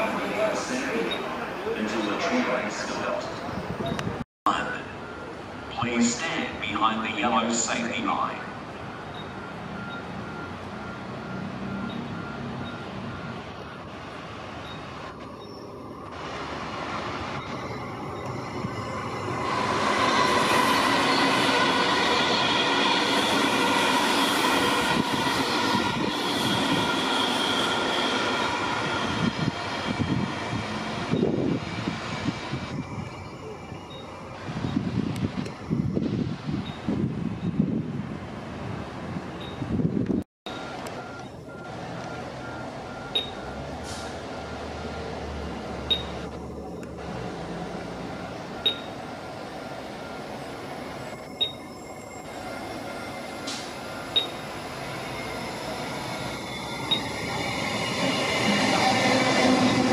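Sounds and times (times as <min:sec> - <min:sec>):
train wheels rumbling on rails: 0:08.5 - 0:59.9
high-pitched whining tones: 0:48.2 - 0:59.9
sharp high chirp: 0:51.1 - 0:54.5, 0:55.1 - 0:57.5.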